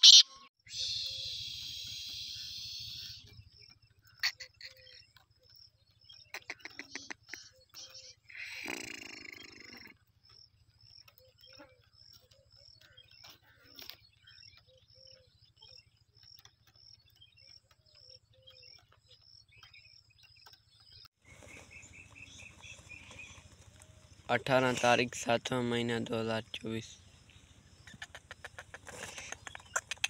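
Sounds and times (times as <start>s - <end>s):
faint high chirps: 0.0s - 8.3s.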